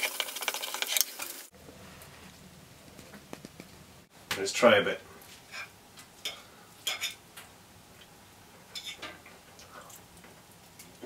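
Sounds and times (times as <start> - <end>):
fork clinking on ceramic plate: 6.3 - 7.2.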